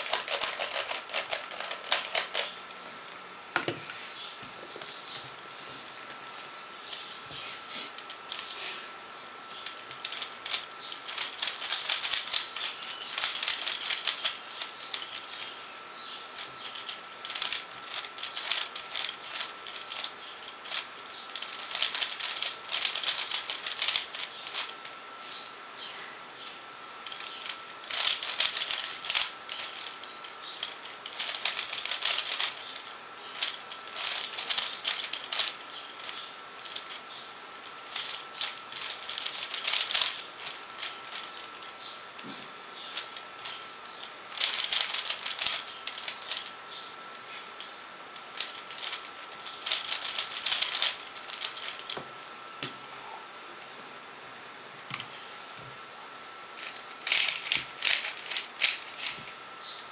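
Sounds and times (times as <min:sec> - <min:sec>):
puzzle cube clicking: 0:00.0 - 0:02.5, 0:09.7 - 0:15.0, 0:16.7 - 0:20.1, 0:21.4 - 0:24.7, 0:27.2 - 0:29.9, 0:30.6 - 0:32.6, 0:33.4 - 0:36.2, 0:37.9 - 0:40.6, 0:49.6 - 0:51.8.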